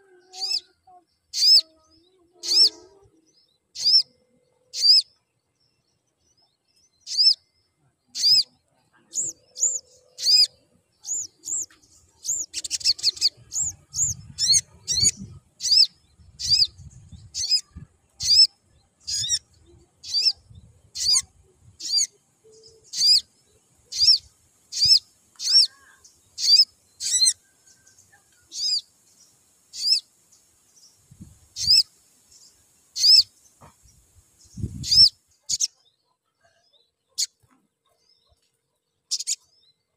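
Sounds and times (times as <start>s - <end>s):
bird high sharp chirps: 0.3s - 2.9s, 3.7s - 5.2s, 7.0s - 7.5s, 8.1s - 23.3s, 23.9s - 28.9s, 29.7s - 30.1s, 30.9s - 33.4s, 34.4s - 35.8s, 39.1s - 39.5s.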